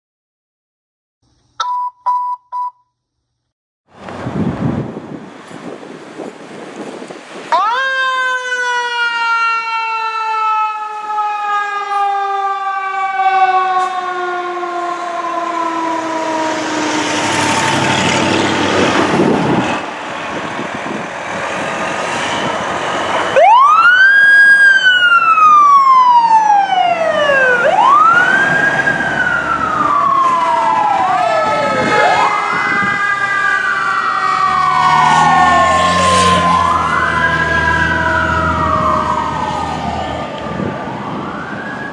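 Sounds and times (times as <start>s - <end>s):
second siren tone gliding down: 7.5s - 20.1s, 21.8s - 41.9s
electronic wail siren: 7.5s - 41.9s
heavy truck engine rumbling: 15.3s - 23.7s, 26.8s - 41.4s
mechanical siren winding down: 22.3s - 41.9s.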